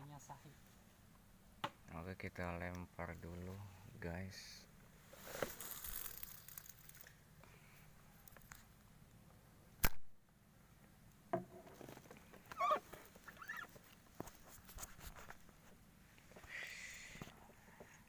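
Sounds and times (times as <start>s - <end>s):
sharp click: 9.8s - 10.1s.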